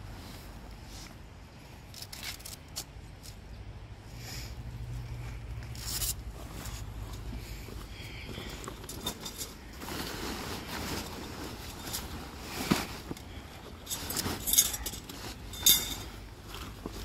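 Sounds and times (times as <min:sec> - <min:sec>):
tent fabric rustling: 0:00.0 - 0:01.4, 0:04.4 - 0:17.0
sharp metal clinks: 0:14.3 - 0:16.2.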